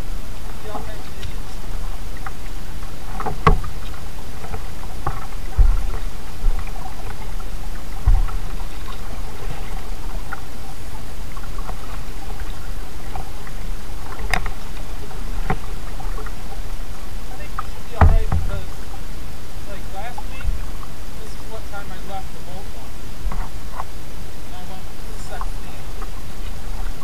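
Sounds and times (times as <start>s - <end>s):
water and hull hiss: 0.0s - 27.0s
paddle splashes and clicks: 0.4s - 19.0s, 23.2s - 24.0s, 24.6s - 27.0s
low knocks on hull: 3.1s - 9.8s, 17.6s - 18.8s.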